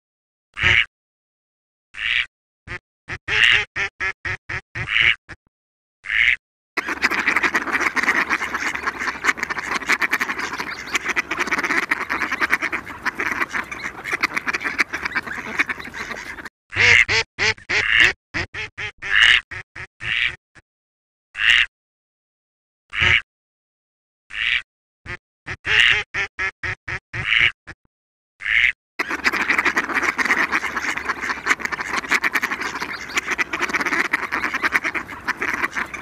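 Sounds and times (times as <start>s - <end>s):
mallard quacking: 0.6s - 0.9s, 3.3s - 4.2s, 4.8s - 5.2s, 6.1s - 19.4s, 23.0s - 23.2s, 24.3s - 27.6s, 28.4s - 36.0s.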